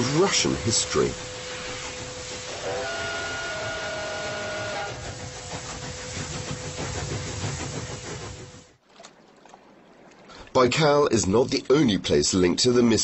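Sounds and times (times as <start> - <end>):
steam locomotive whistle: 0.0 - 5.4
locomotive running on rails: 0.0 - 8.8.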